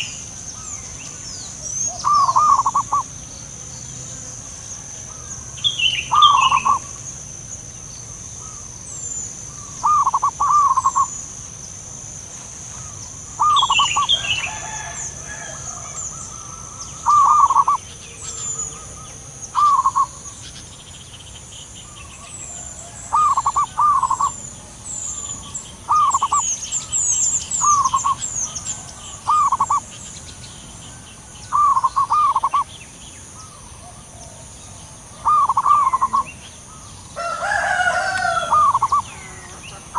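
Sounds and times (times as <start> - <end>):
doves cooing: 0.0 - 7.1, 8.4 - 11.5, 12.7 - 20.6, 22.0 - 30.0, 30.9 - 32.7, 33.3 - 39.9
small birds chirping: 0.0 - 39.9.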